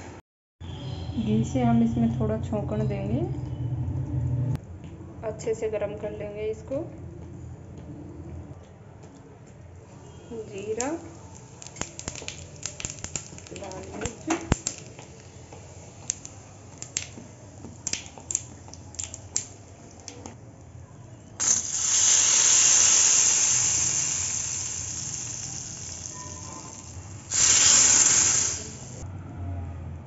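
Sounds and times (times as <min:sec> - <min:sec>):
spices crackling in hot oil: 0:10.0 - 0:20.4, 0:21.4 - 0:29.0.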